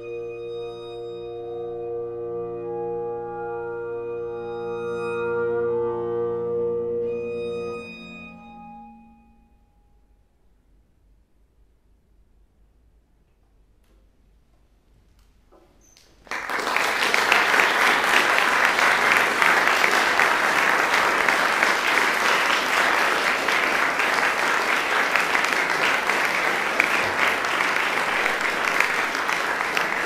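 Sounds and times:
audience applause: 0:16.2 - 0:30.0.

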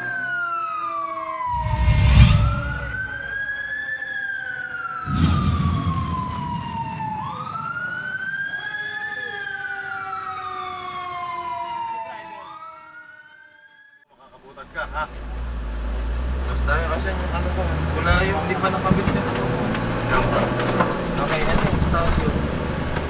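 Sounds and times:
fire truck siren wailing: 0:00.0 - 0:14.1
loud rumbling bursts: 0:01.5 - 0:03.5, 0:05.0 - 0:08.2.

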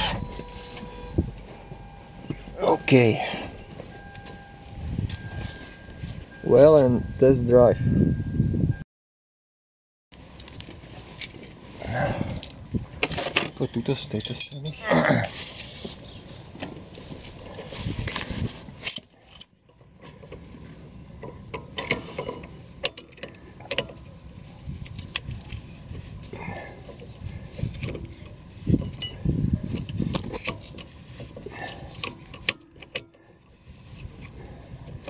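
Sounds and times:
metal tools clicking and clanking: 0:12.4 - 0:15.9, 0:18.8 - 0:20.4, 0:21.2 - 0:24.1, 0:26.8 - 0:35.0.

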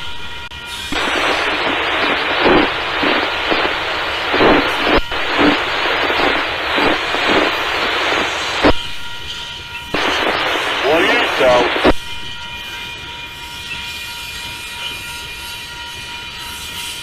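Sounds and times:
freight train rolling past: 0:12.0 - 0:17.0.

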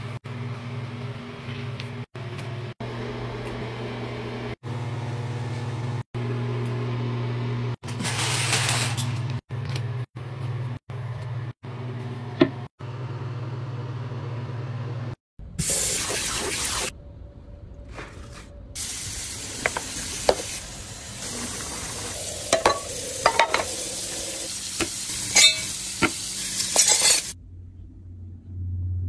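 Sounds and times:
low mechanical hum: 0:16.9 - 0:29.0.

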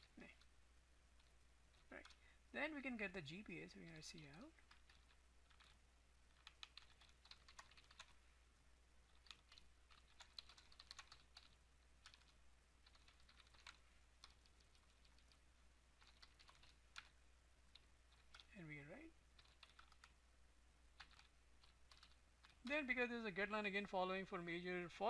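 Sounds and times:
computer keyboard typing: 0:01.2 - 0:02.2, 0:03.7 - 0:08.2, 0:09.1 - 0:15.4, 0:16.0 - 0:18.6, 0:19.4 - 0:20.2, 0:21.0 - 0:22.7.

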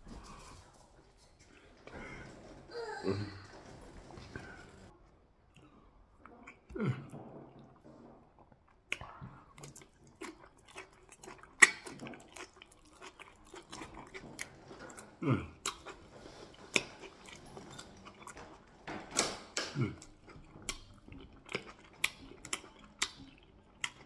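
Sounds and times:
wet chewing and lip-smacking: 0:05.5 - 0:24.0.

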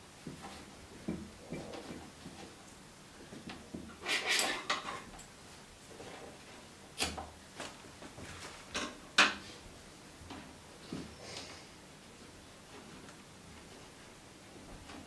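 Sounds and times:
wire scraping on board: 0:03.9 - 0:05.2.

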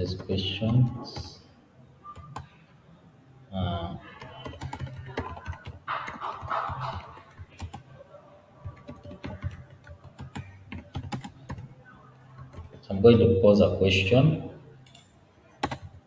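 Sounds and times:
computer keyboard typing: 0:04.0 - 0:07.9, 0:08.6 - 0:11.7, 0:12.3 - 0:12.8, 0:14.8 - 0:16.0.

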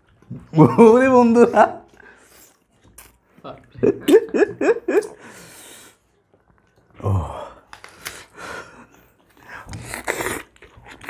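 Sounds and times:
person breathing: 0:05.2 - 0:06.1, 0:07.0 - 0:09.9
wet chewing and sucking: 0:09.0 - 0:11.0.

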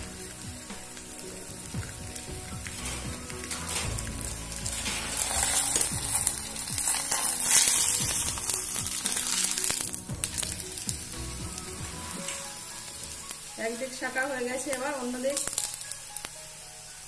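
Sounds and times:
flatbread sizzling in hot oil: 0:00.0 - 0:17.0.

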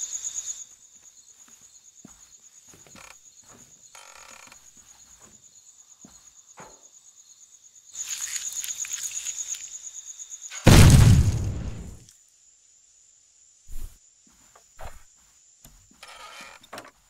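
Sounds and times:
crickets chirping: 0:00.0 - 0:17.0
loud explosion boom: 0:10.7 - 0:12.0.

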